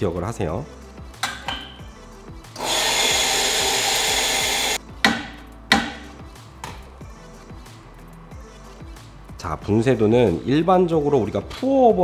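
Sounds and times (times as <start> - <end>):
electric coffee grinder grinding: 2.6 - 4.8
sharp knocks: 5.0 - 6.8.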